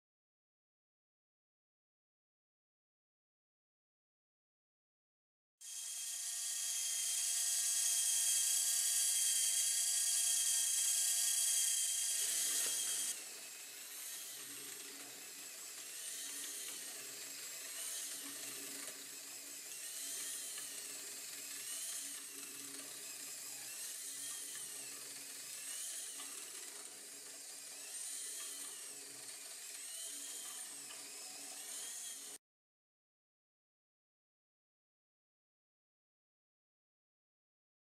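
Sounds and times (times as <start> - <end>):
small gear motor whining: 5.6 - 32.4.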